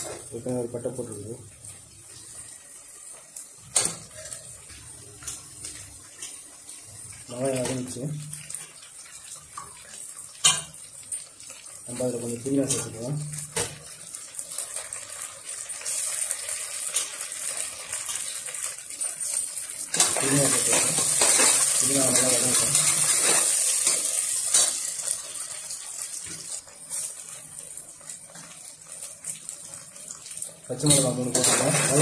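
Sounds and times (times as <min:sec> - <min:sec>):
vegetables sizzling in hot oil: 0:00.0 - 0:32.0
ladle stirring in pot: 0:25.9 - 0:32.0.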